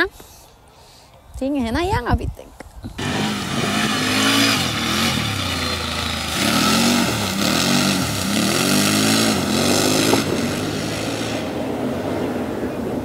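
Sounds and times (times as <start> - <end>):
engine revving: 3.0 - 12.4.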